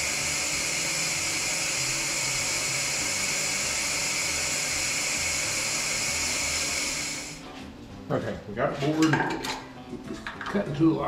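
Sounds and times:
boring machine cutter hissing: 0:00.0 - 0:07.4.

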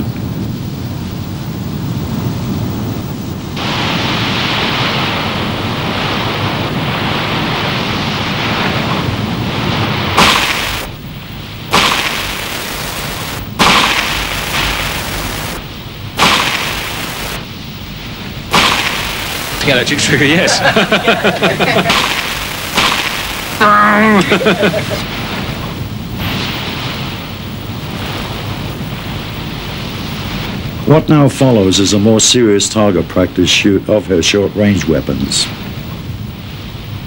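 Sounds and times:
steady rushing noise: 0:00.0 - 0:37.0
revolver shots: 0:11.7 - 0:17.4, 0:18.5 - 0:19.9, 0:21.0 - 0:24.9.

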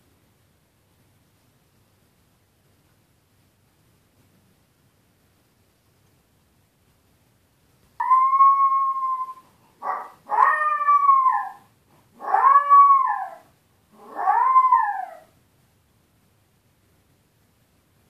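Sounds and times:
puppy howling and crying: 0:08.0 - 0:15.3
puppy yelp: 0:08.0 - 0:15.3.

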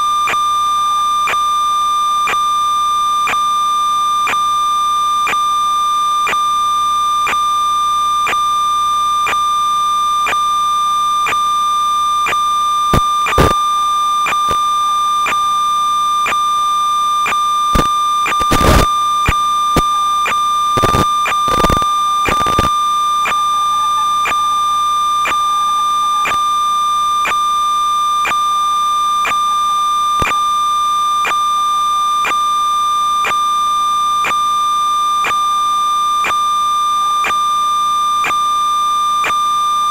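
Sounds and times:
steady electronic whine: 0:00.0 - 0:39.9
static crackle bursts: 0:01.2 - 0:39.9.

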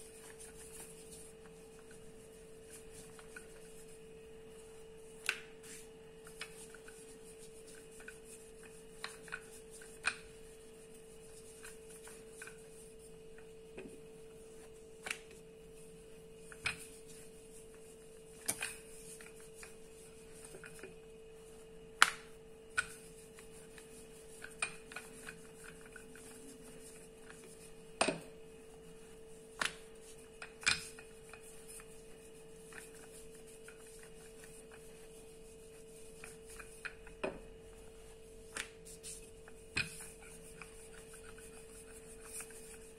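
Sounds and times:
faint steady hum: 0:00.0 - 0:42.9
rolling pin rolling dough: 0:00.0 - 0:42.9.

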